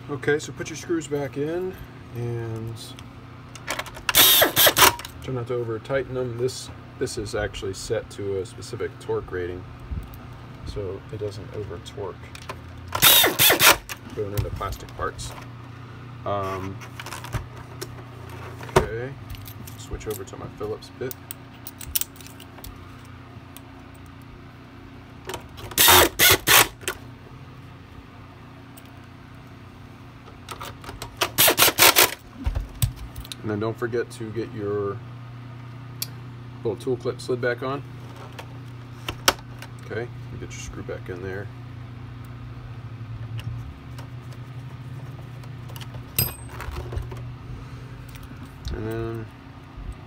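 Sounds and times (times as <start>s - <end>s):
steady low hum: 0.0s - 50.0s
electric screwdriver driving screws: 4.1s - 5.0s, 13.0s - 13.9s, 25.8s - 26.8s, 31.3s - 32.2s.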